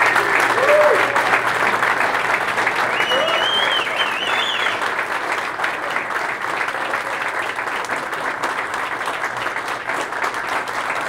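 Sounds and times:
men applauding: 0:00.0 - 0:11.0
high whistle: 0:03.0 - 0:04.8.

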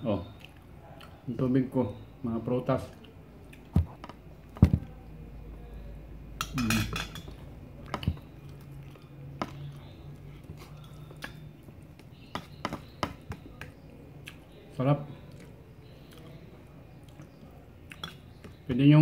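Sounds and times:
fork clinking on metal plate: 0:06.4 - 0:07.4.

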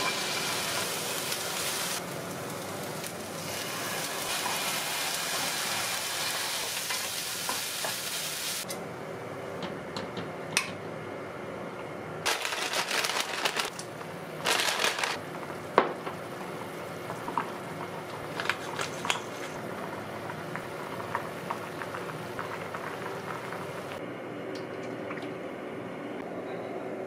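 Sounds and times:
pepper grinder crunching: 0:12.3 - 0:15.2
soup bubbling in a pot: 0:19.6 - 0:24.0.

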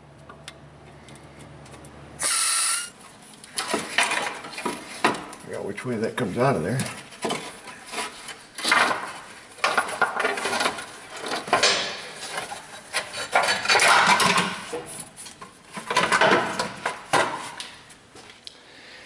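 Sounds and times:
metal heat shield clanking and rattling: 0:08.2 - 0:17.4.

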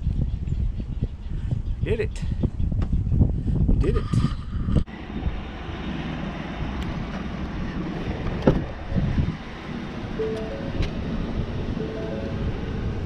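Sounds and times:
truck engine running: 0:04.9 - 0:13.0.

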